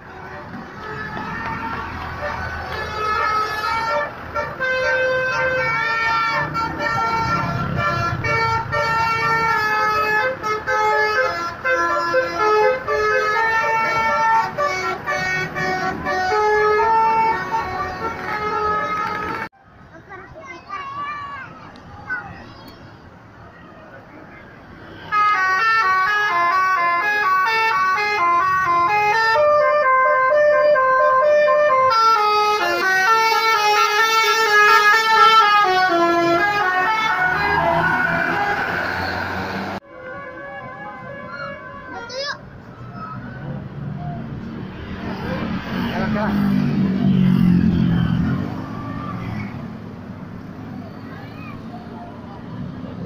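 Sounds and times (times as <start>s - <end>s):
engine rumbling: 0.0s - 41.8s, 42.4s - 53.0s
musical air horn melody: 0.8s - 19.5s, 25.1s - 42.0s.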